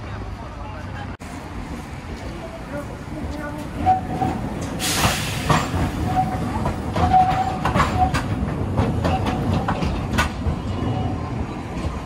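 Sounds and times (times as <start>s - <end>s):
tram rumble: 0.0s - 12.0s
wheel clacks over rail joints: 3.5s - 11.0s.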